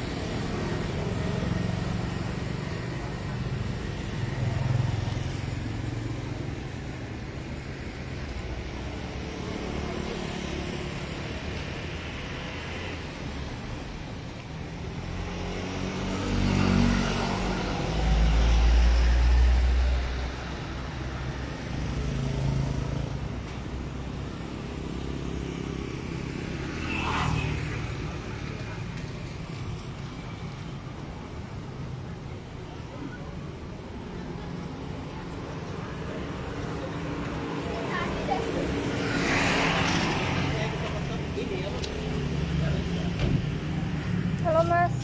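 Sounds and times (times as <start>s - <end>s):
vehicles passing: 0.0s - 45.0s
close vehicle passing: 35.9s - 45.0s.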